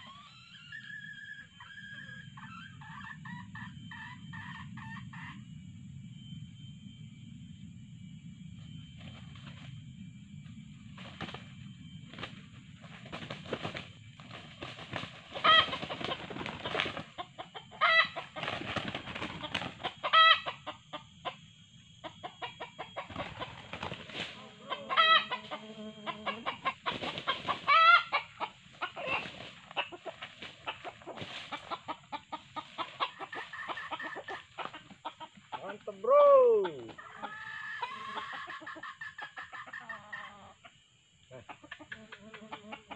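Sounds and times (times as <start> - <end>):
roosters clucking: 0.0 - 5.6, 8.5 - 42.9
sharp rooster calls: 15.4 - 16.8, 24.4 - 29.4, 35.6 - 38.5.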